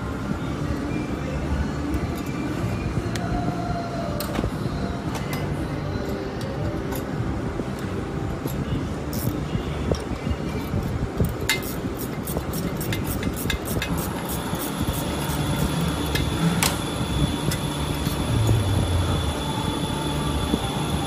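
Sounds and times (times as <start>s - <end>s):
low workshop rumble: 0.0s - 21.0s
metal parts clicking and clinking: 8.4s - 14.4s.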